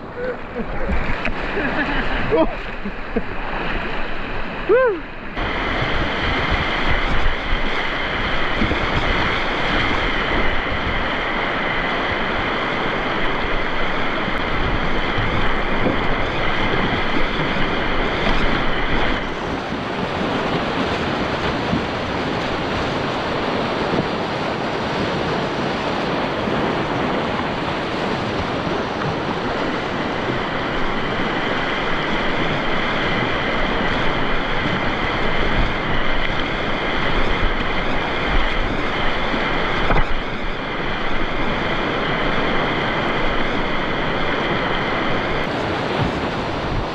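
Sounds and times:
whitewater rapids rushing: 0:00.0 - 0:46.9.

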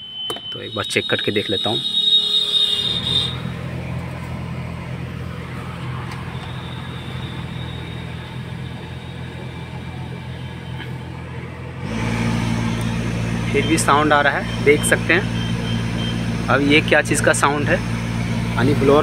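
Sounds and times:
car blower fan humming: 0:01.4 - 0:19.0.

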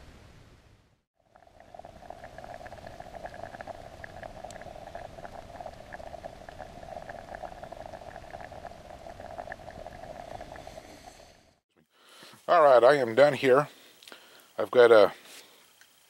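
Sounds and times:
liquid bubbling in a pot: 0:01.2 - 0:11.6.

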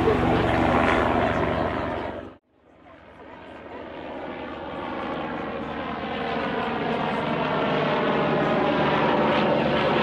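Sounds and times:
engine drone: 0:00.0 - 0:02.4.

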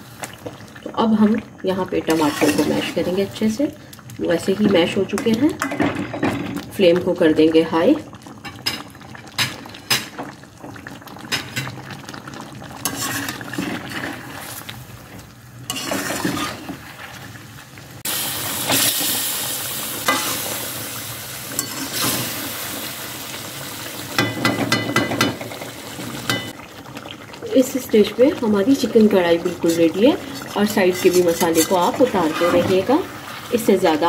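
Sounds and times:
food sizzling in a pan: 0:00.0 - 0:34.0
spatula scraping and tapping pan: 0:12.8 - 0:13.4, 0:15.7 - 0:16.8, 0:30.3 - 0:33.0.

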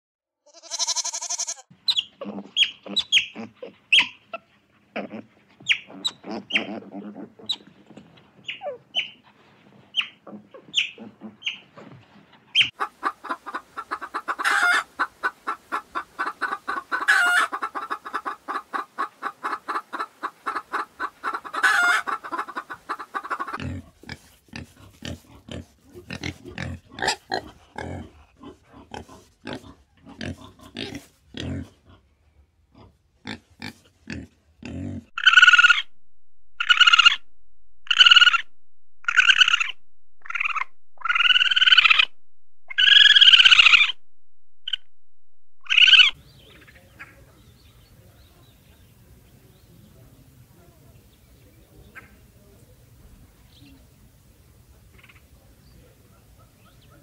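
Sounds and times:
deep grunt-like animal calls: 0:02.1 - 0:08.9, 0:10.1 - 0:12.0, 0:37.9 - 0:44.0
loud animal calls: 0:35.1 - 0:36.0, 0:36.6 - 0:44.0, 0:45.6 - 0:46.2
rapid pulsing animal calls: 0:35.2 - 0:35.9, 0:36.6 - 0:37.2, 0:37.9 - 0:44.0, 0:45.6 - 0:46.2.

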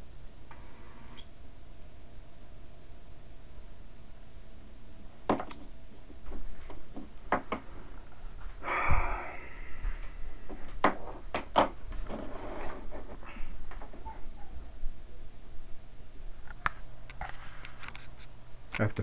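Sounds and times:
sharp knocks and clicks: 0:05.3 - 0:05.7, 0:06.3 - 0:07.7
scraping rustle: 0:11.9 - 0:14.3.

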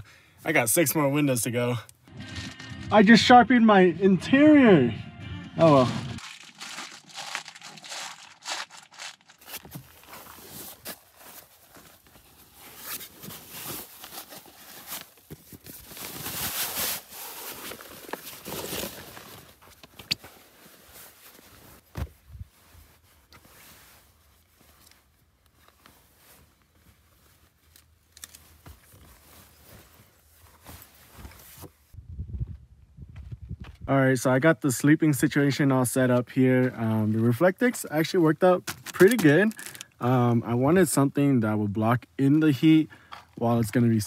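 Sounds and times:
nylon sleeping bag rustling: 0:05.8 - 0:31.9.

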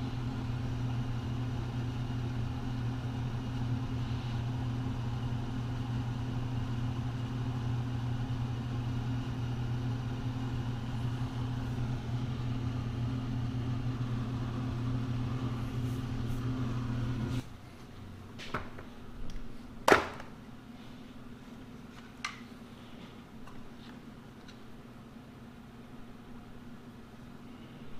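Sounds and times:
low machine hum: 0:00.0 - 0:27.9.

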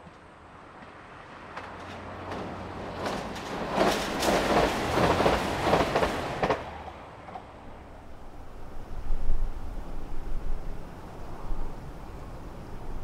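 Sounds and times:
diesel railcar passing: 0:00.0 - 0:13.0
wheels clattering over rail joints: 0:01.5 - 0:07.9.

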